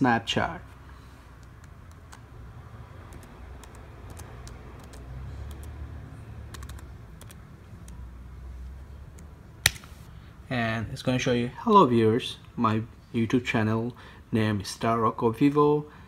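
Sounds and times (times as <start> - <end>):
computer keyboard typing: 1.4 - 2.3, 3.0 - 5.8, 6.4 - 8.0.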